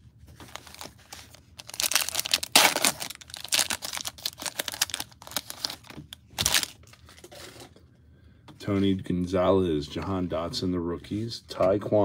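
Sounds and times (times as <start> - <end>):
plastic wrapper tearing and crinkling: 0.4 - 7.5.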